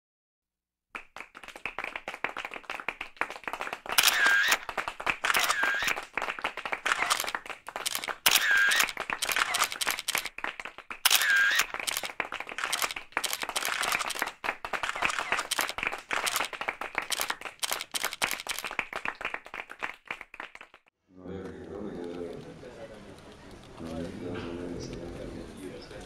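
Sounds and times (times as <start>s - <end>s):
sharp clicks: 3.9s - 6.0s, 6.9s - 10.4s, 11.0s - 16.5s, 17.1s - 18.7s.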